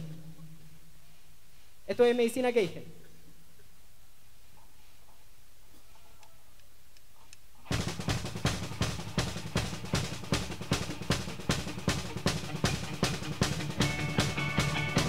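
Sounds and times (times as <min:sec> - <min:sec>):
drum kit fast rock beat: 0:07.7 - 0:15.0.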